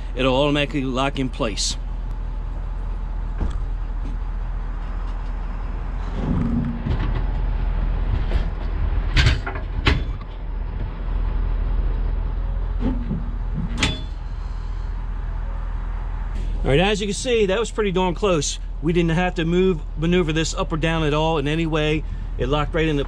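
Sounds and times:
pickup truck engine running: 0.0 - 23.0
creaks: 4.8 - 11.4
metal clunks of trailer hitch: 8.3 - 10.4, 12.8 - 14.3.

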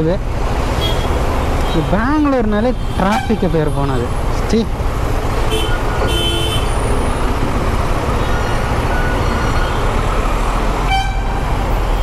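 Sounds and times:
motorcycle engine rumbling: 0.2 - 10.8
horn toots: 5.5 - 6.8.

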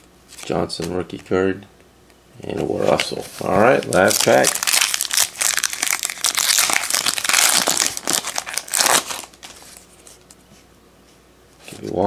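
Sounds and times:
foil wrapper crinkling: 2.8 - 9.9.

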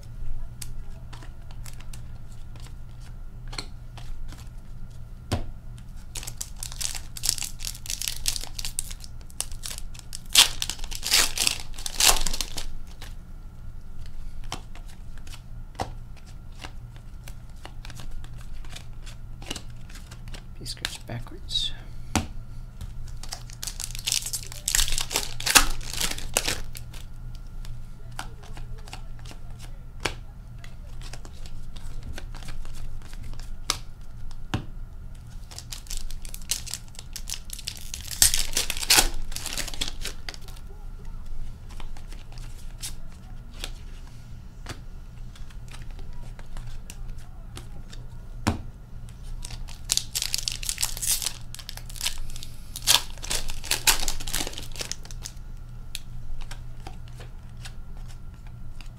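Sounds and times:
wrappers crinkling: 5.9 - 13.2, 23.0 - 27.1, 35.2 - 43.9, 49.2 - 58.9
card packs torn open: 6.1 - 13.1, 23.0 - 27.0, 35.2 - 40.7, 49.3 - 58.9.

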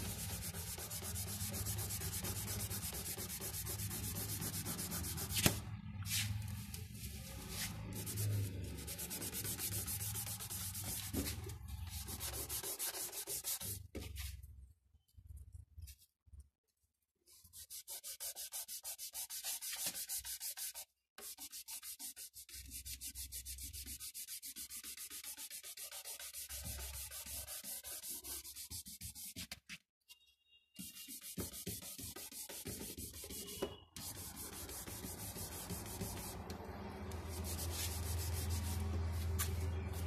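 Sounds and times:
fingertips rubbing paper: 30.9 - 36.5.

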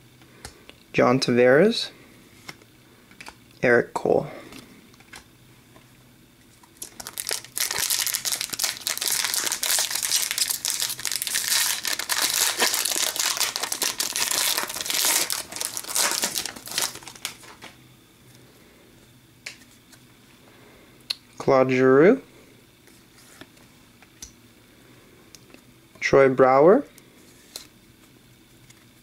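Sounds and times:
foil wrapper crinkling and tearing: 6.7 - 17.8.

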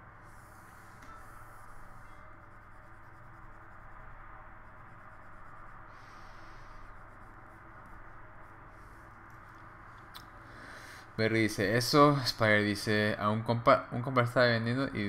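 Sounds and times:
stylus scratching on tablet: 0.2 - 9.9.

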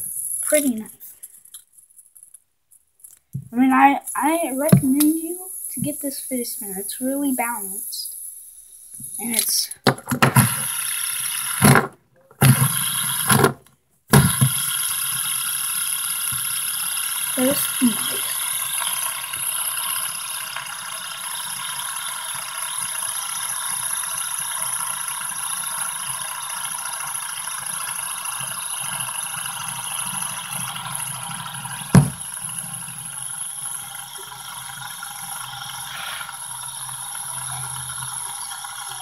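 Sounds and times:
fidget spinner whirring: 0.0 - 39.0.

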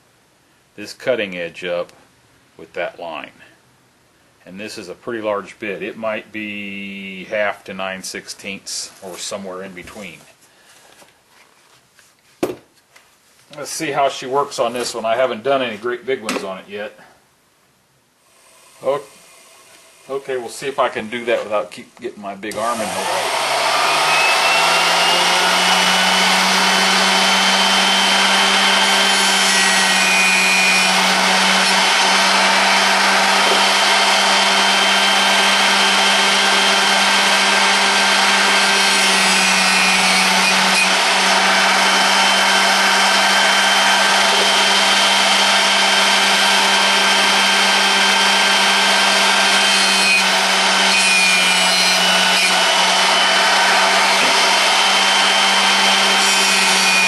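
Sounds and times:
drill bit grinding hiss: 18.3 - 20.4, 22.5 - 57.0
motor humming: 22.8 - 57.0.

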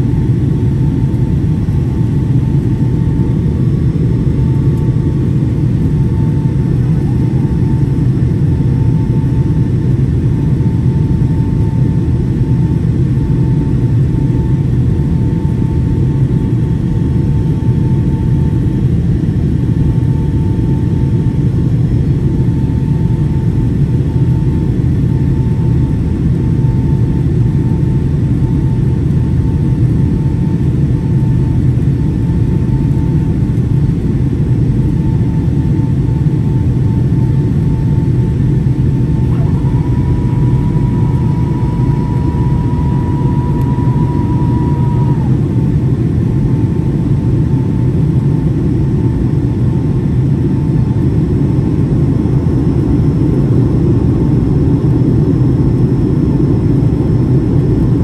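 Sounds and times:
airplane cabin roar: 0.0 - 58.0
faint high tone: 39.2 - 45.6.

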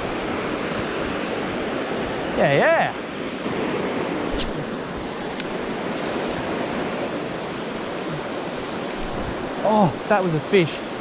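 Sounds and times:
river water rushing over rocks: 0.0 - 11.0.

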